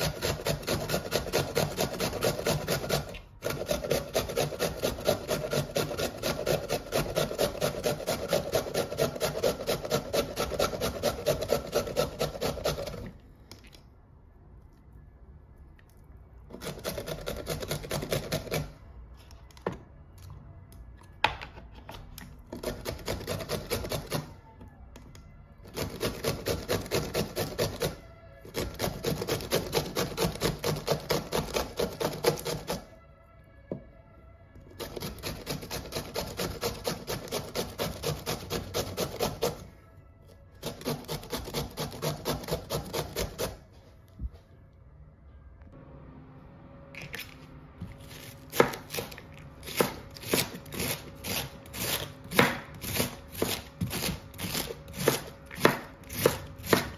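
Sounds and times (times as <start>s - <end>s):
grater scraping: 0.0s - 13.1s, 22.6s - 24.3s, 25.6s - 32.9s, 34.8s - 39.6s, 40.6s - 43.6s, 48.0s - 56.9s.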